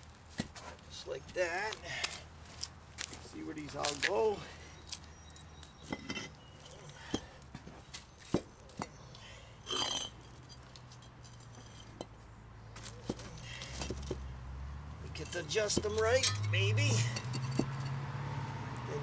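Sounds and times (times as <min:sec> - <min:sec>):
stone scraping: 0:05.8 - 0:07.3, 0:09.6 - 0:12.1.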